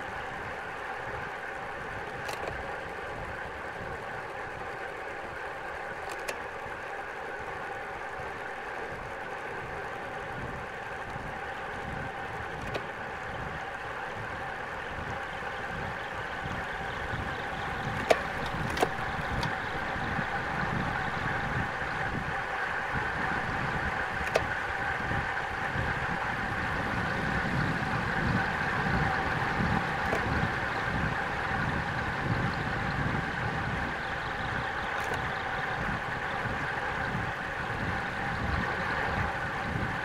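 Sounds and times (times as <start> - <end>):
rushing wind: 0.0 - 40.0
sharp clicks: 2.0 - 2.7, 6.0 - 6.5, 12.5 - 13.0, 17.4 - 19.8, 24.2 - 24.6, 30.0 - 30.4, 34.9 - 35.3.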